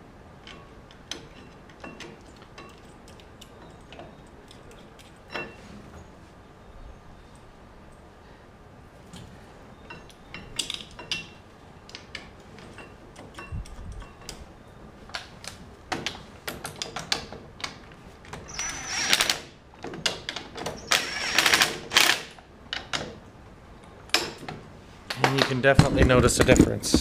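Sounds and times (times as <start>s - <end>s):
metal parts clicking and tapping: 0.4s - 5.6s, 9.1s - 14.5s, 15.1s - 23.2s, 23.8s - 27.0s.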